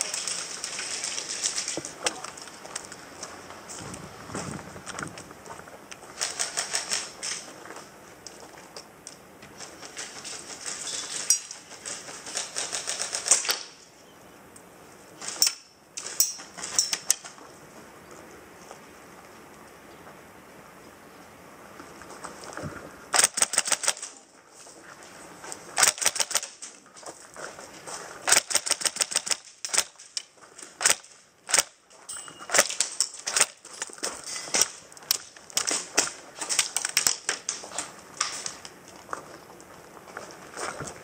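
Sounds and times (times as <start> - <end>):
airsoft guns firing bursts: 23.1 - 24.1, 25.8 - 26.6, 28.3 - 30.0.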